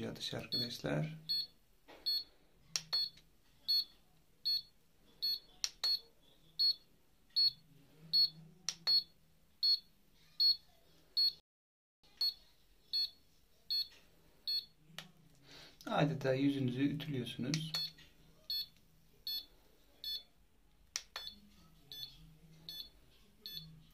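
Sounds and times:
device beeping: 0:07.4 - 0:07.6, 0:08.2 - 0:10.6, 0:21.1 - 0:23.7.

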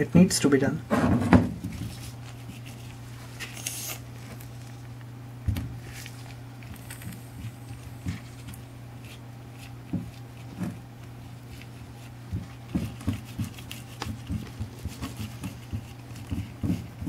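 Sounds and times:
fingers dabbing wet mortar: 0:06.7 - 0:17.0.

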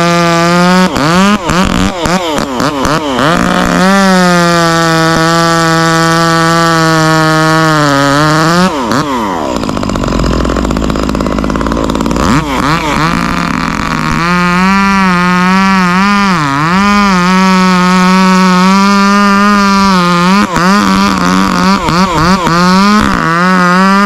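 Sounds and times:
chainsaw revving high: 0:00.0 - 0:24.0.

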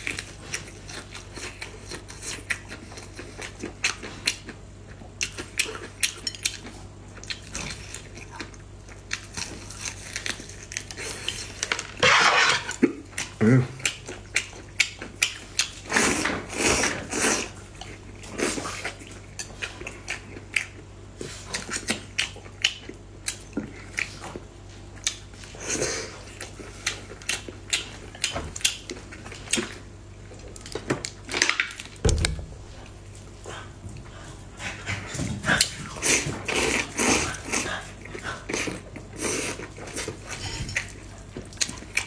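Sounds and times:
low steady hum: 0:00.0 - 0:42.0
noodles slurped and chewed: 0:35.4 - 0:42.0.

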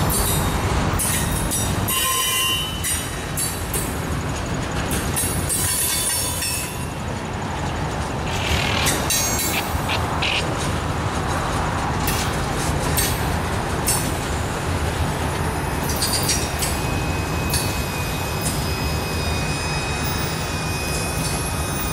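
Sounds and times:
train wheels rumbling on rail: 0:00.0 - 0:21.9
wheels clacking over rail joints: 0:00.0 - 0:21.9
high-pitched wheel squeals: 0:00.1 - 0:03.6, 0:15.8 - 0:21.9.

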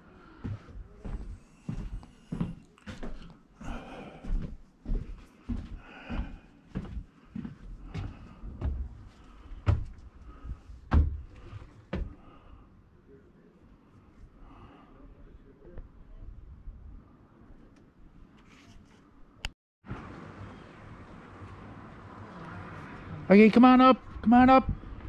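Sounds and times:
knocks and thumps: 0:10.9 - 0:12.2.

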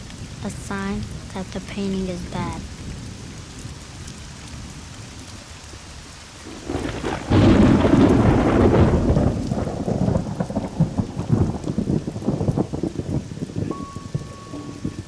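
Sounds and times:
heavy rain pattering on leaves: 0:00.0 - 0:15.0
steady rain: 0:00.0 - 0:15.0
thunder clap rumbling: 0:06.4 - 0:15.0.

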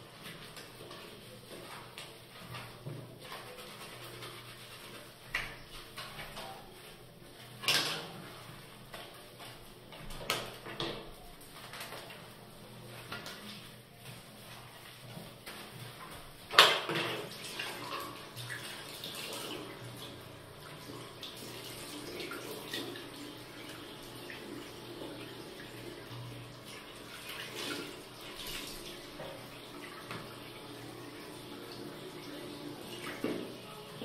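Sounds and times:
sponge scrubbing basin: 0:00.0 - 0:34.0
tap water running into basin: 0:15.0 - 0:34.0.

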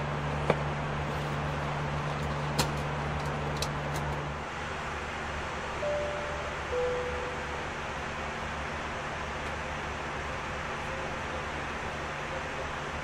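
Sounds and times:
low hum: 0:00.0 - 0:11.0
airplane cabin rushing noise: 0:00.5 - 0:04.4
two-tone chime: 0:05.8 - 0:07.6.

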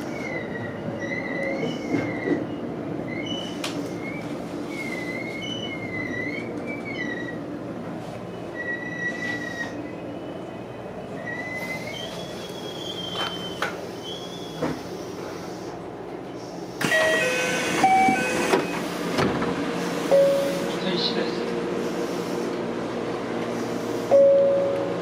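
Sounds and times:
train wheels squealing on rails: 0:00.0 - 0:07.6, 0:08.3 - 0:15.7
low rumble of moving train car: 0:00.0 - 0:25.0.

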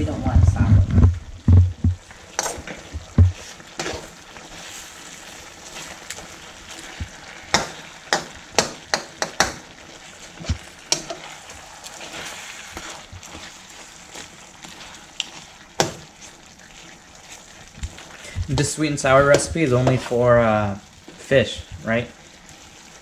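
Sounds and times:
sauce sizzling in a wok: 0:01.2 - 0:23.0
metal spoon scraping a wok: 0:02.4 - 0:02.8, 0:03.8 - 0:04.8.

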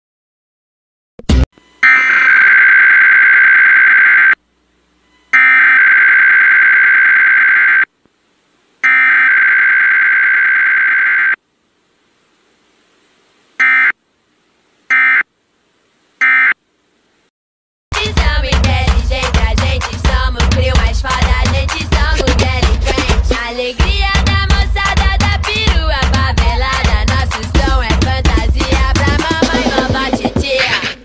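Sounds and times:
screechy digital alert tones: 0:01.8 - 0:04.4, 0:08.8 - 0:11.4.

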